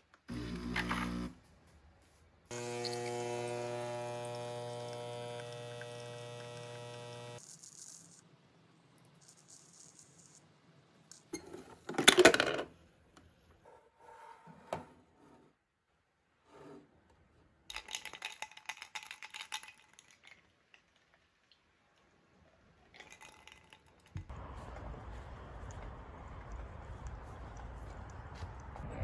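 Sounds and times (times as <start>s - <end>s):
kitchen items clattering: 11.4s - 12.7s.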